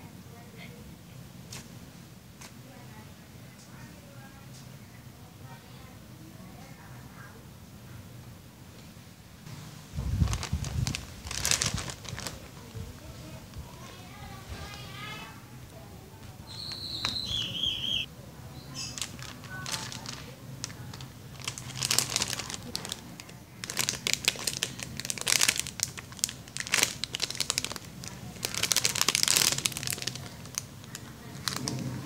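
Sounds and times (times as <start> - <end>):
plastic bag crinkling: 9.9 - 15.1, 18.7 - 32.0.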